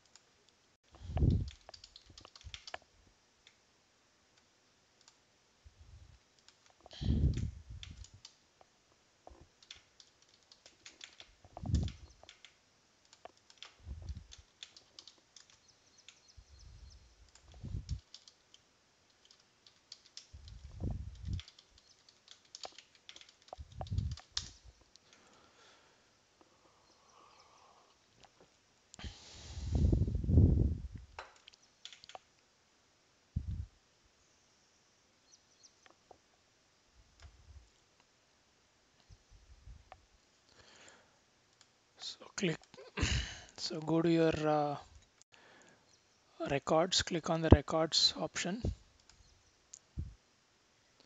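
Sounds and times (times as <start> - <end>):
mouse clicks: 1.1 - 2.8, 9.6 - 16.4, 17.3 - 25.2, 31.2 - 32.3
keyboard typing: 1.2 - 2.8, 9.3 - 16.4, 17.3 - 25.2, 31.4 - 32.3.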